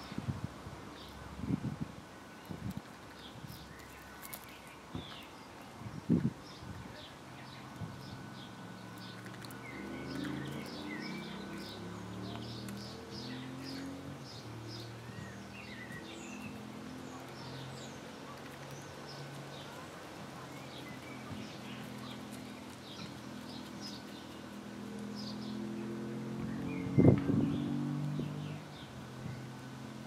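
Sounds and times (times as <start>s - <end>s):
small birds chirping: 0.9s - 30.0s.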